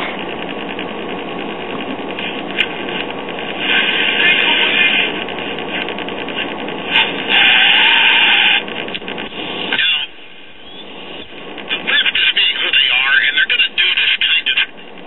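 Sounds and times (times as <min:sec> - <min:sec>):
radio static hissing: 0:00.0 - 0:15.0
wavering radio whistle: 0:06.9 - 0:08.6, 0:09.4 - 0:11.4.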